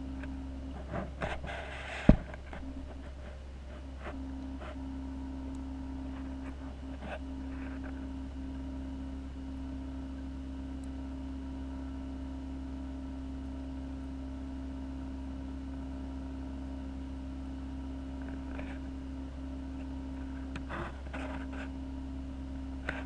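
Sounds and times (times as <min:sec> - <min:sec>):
constant tone: 0:00.0 - 0:12.2, 0:18.1 - 0:23.0
aquarium pumps humming: 0:00.0 - 0:23.0.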